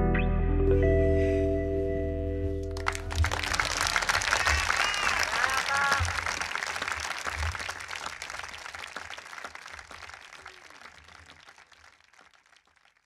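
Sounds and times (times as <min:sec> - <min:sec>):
audience applause: 0:02.8 - 0:13.0.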